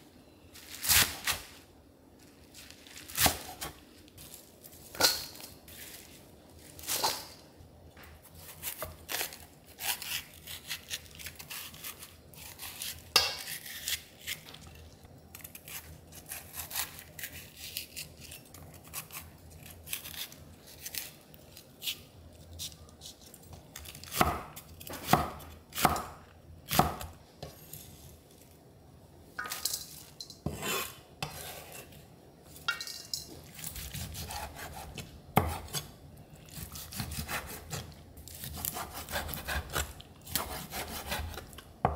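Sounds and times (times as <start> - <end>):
knife chopping on wooden board: 34.0 - 35.8.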